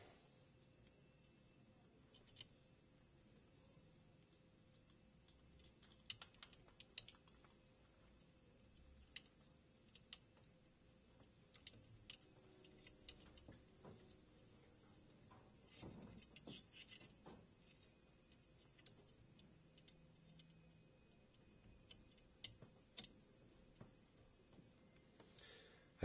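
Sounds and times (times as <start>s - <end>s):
small metal parts clicking: 2.1s - 2.5s, 4.6s - 10.6s, 11.2s - 23.8s.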